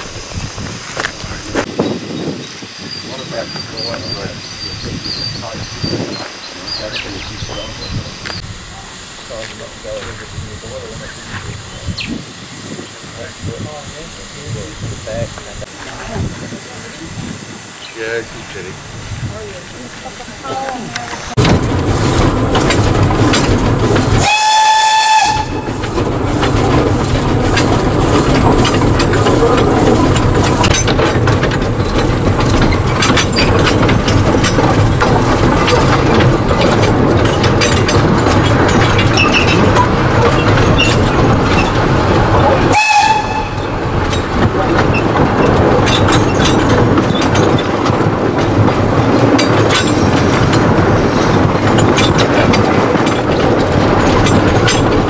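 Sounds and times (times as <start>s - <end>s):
steam locomotive running: 0.0s - 55.0s
wheels clattering over rails: 0.0s - 55.0s
steam whistle: 24.2s - 25.7s, 42.7s - 43.6s.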